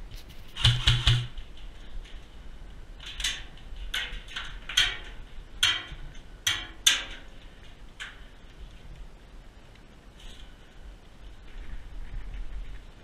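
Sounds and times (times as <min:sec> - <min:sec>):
footsteps on gritty floor: 0:00.0 - 0:00.6.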